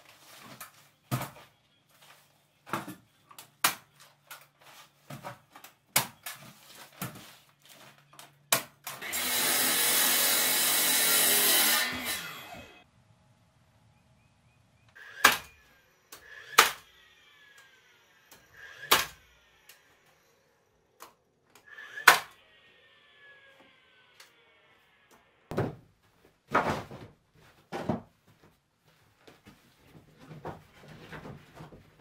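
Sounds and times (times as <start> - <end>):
nail gun firing: 15.0 - 15.6, 16.4 - 16.9, 18.7 - 19.2, 22.0 - 22.3
nail gun motor whir: 15.0 - 22.4.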